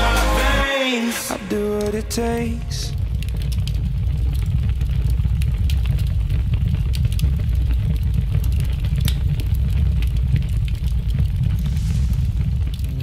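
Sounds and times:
loud low rumble: 1.8 - 6.7, 8.6 - 13.0.

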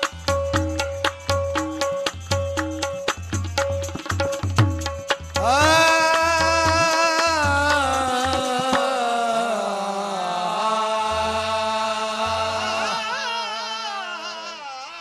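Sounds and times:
qawwali music: 0.0 - 15.0
wordless singing: 5.4 - 15.0.

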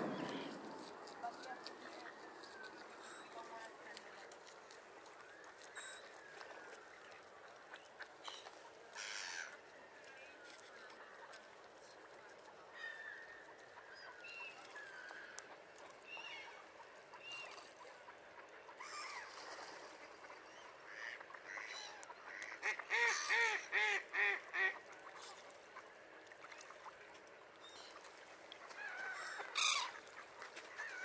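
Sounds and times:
ducks and gulls calling: 0.0 - 3.7, 10.4 - 31.0.

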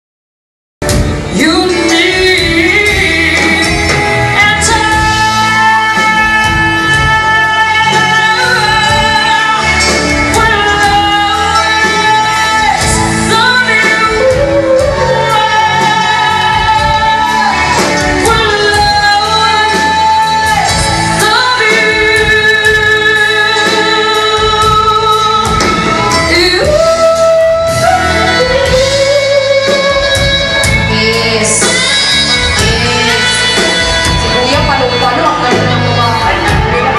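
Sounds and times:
electric guitars and drums: 0.8 - 36.9
woman singing with vibrato: 1.2 - 36.9.

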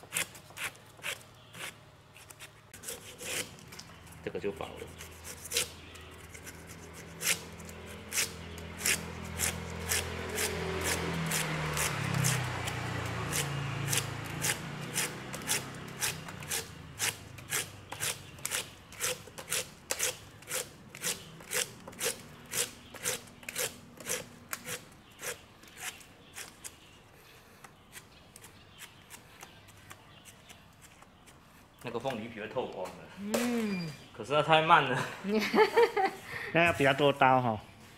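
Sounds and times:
knife cutting pineapple rind: 0.0 - 3.9, 4.5 - 26.8.

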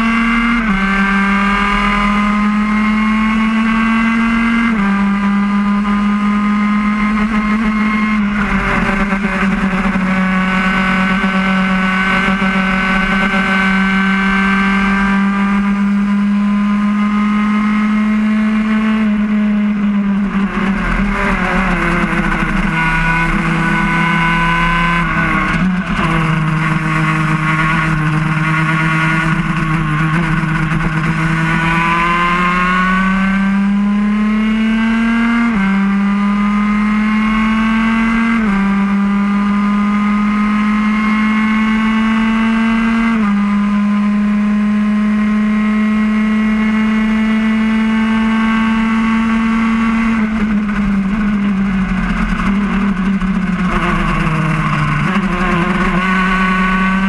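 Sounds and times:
racing kart engine at full throttle: 0.0 - 57.0.

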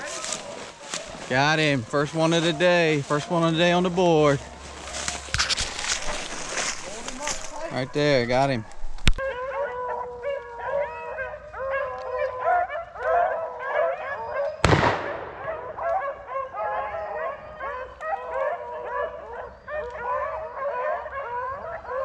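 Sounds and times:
beagles baying and howling: 0.0 - 22.0
shotgun blast: 14.6 - 15.7.

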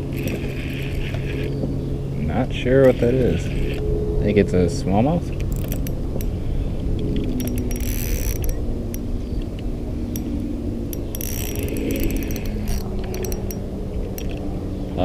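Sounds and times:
reel being cranked: 0.0 - 1.6, 2.8 - 3.8, 5.5 - 6.4, 7.1 - 9.1, 10.1 - 14.4
reel drag clicking: 0.0 - 1.6, 2.8 - 3.8, 5.3 - 14.5.

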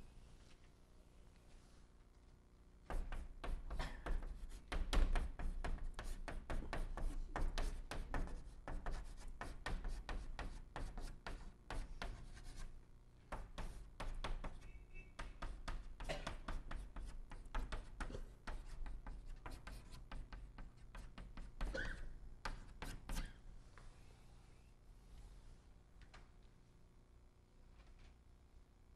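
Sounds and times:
chalk tapping on blackboard: 2.9 - 12.7, 13.3 - 23.4.

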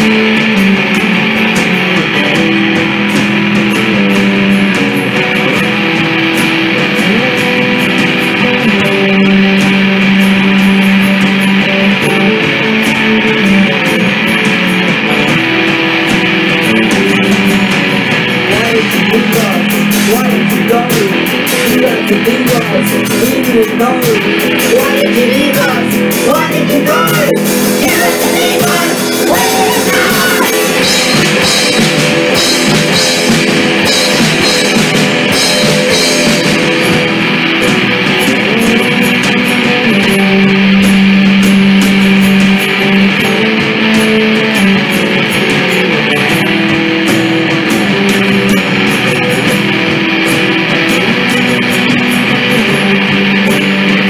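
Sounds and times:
bass guitar: 0.0 - 54.0
drum kit: 0.0 - 54.0
electric guitars: 0.0 - 54.0
cymbals: 27.2 - 45.1.

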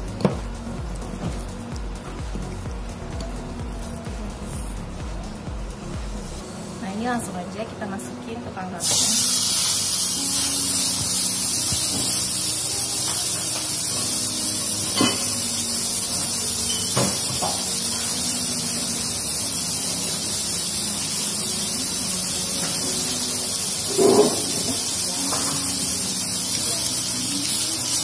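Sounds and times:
chicken sizzling in grill pan: 8.8 - 28.0.

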